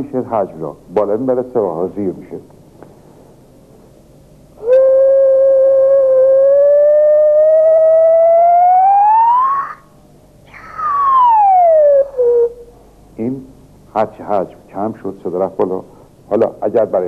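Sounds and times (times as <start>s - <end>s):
hand whistle tone: 4.6s - 9.8s.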